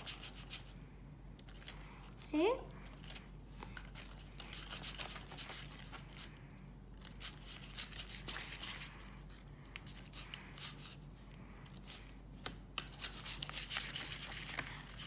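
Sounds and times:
stick scraping sticky slime: 11.7s - 15.0s.

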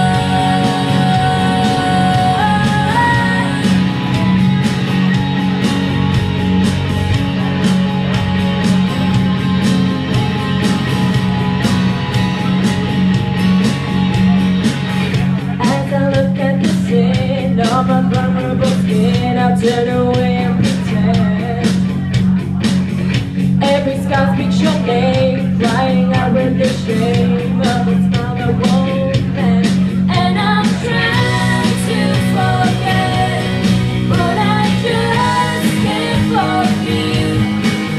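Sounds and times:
woman singing: 0.0s - 4.2s, 15.6s - 21.9s, 23.6s - 37.9s
rock backing track: 0.0s - 37.9s.

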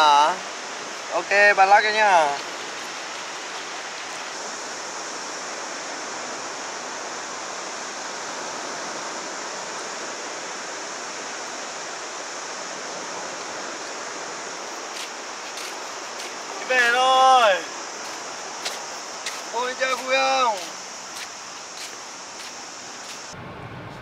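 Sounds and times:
sea surf on beach: 0.0s - 23.8s
high hiss: 0.0s - 24.0s.

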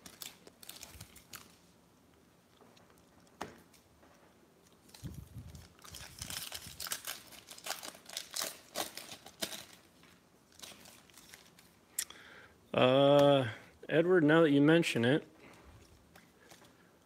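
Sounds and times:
plastic wrapper tearing and crinkling: 0.0s - 1.7s, 4.7s - 11.8s.

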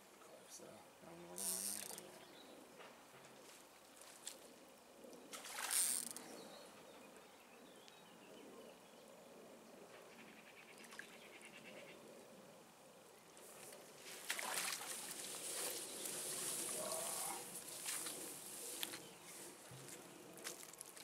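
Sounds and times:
water sloshing: 14.1s - 18.3s.

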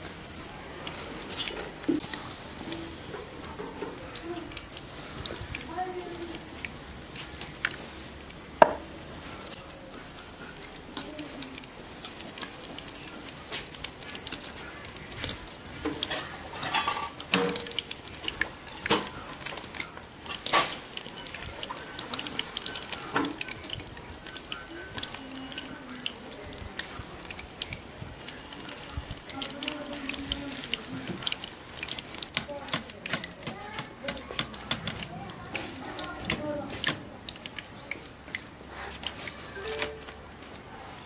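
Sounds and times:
food deep-frying in oil: 0.0s - 41.0s
oil crackling and popping: 0.0s - 41.0s.

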